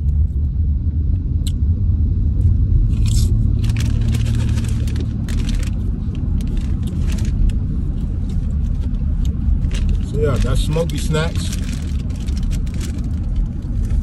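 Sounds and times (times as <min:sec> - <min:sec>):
car driving rumble: 0:00.0 - 0:14.0
potato chips crunching: 0:02.9 - 0:07.6, 0:09.2 - 0:14.0.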